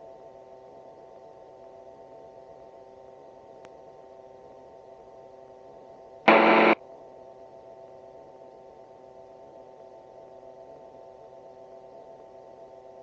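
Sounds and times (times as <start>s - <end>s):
loud burst of noise: 6.3s - 6.8s.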